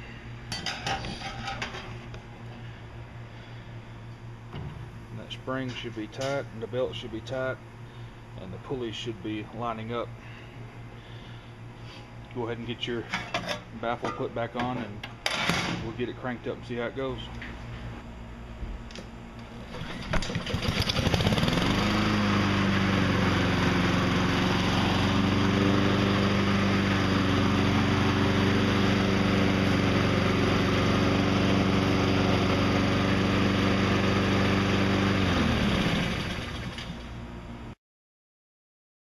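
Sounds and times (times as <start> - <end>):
lawn mower engine running: 19.5 - 37.3.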